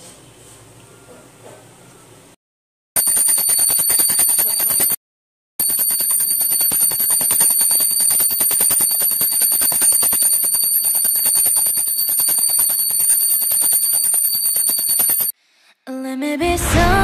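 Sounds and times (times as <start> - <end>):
hand bell ringing rapidly: 3.0 - 5.0, 5.6 - 15.3.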